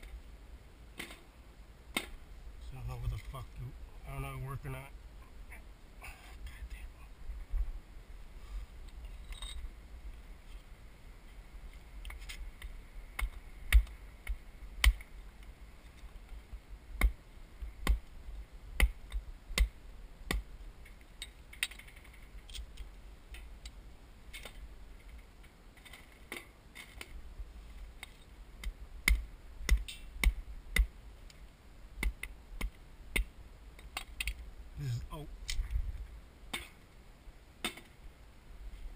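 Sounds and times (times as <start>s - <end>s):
wood pieces clacking together: 20.8s - 23.5s.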